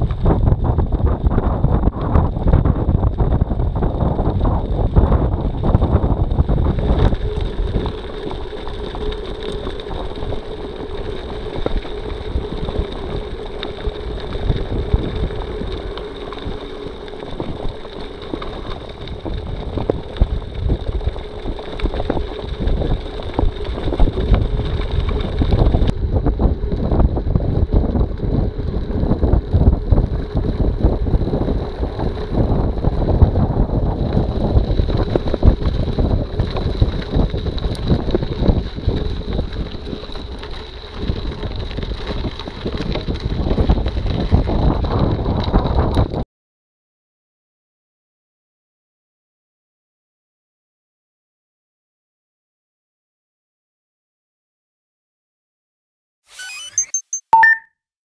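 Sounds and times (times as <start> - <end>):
wind on microphone: 0.0 - 46.2
tyres on gravel: 4.2 - 25.6.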